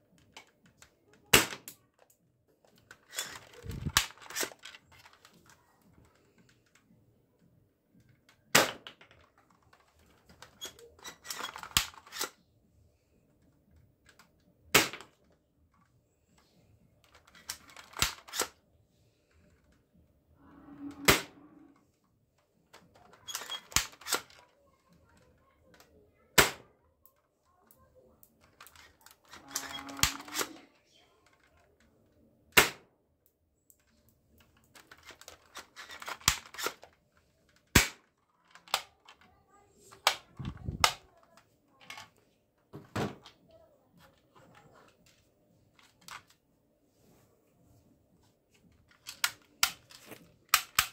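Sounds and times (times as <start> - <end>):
toy rifle cocking clicks: 50.5 - 50.9.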